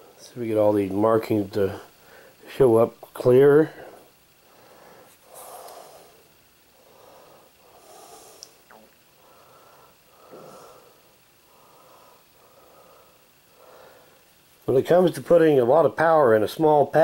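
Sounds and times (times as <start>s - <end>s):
man breathing through nose: 1.9s - 2.4s, 3.7s - 14.4s.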